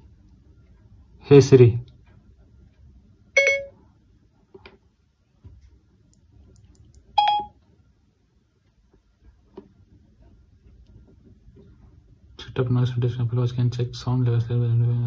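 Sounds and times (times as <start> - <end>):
electronic chime: 3.4 - 3.8, 7.2 - 7.6
faint clicks: 5.5 - 7.1.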